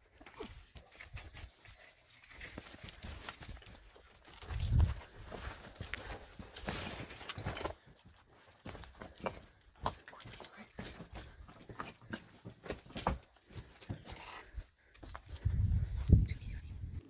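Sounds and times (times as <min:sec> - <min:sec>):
clothing and gear rustling: 0:00.4 - 0:08.8
footsteps crunching on rubble: 0:00.4 - 0:16.0.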